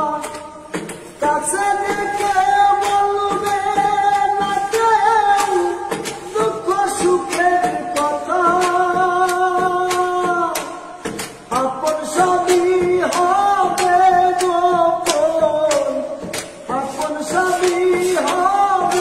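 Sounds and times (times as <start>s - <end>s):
man singing unaccompanied: 0.0s - 19.0s.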